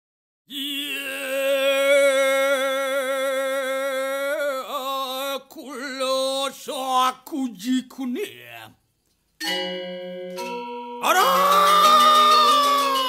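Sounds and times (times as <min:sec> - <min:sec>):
solo voice chanting: 0:00.5 - 0:08.8, 0:11.0 - 0:13.0.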